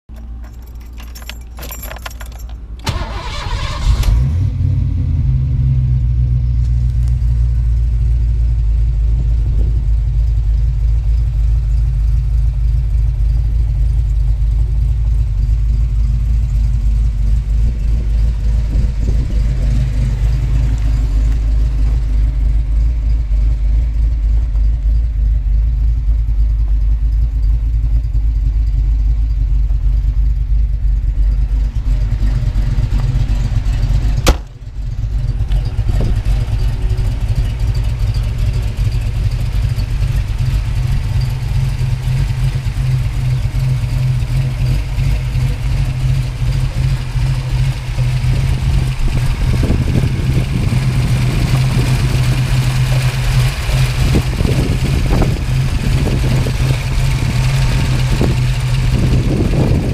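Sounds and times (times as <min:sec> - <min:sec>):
car engine starting and idling: 0:00.1 - 0:59.9
starter clicks: 0:34.2 - 0:34.6.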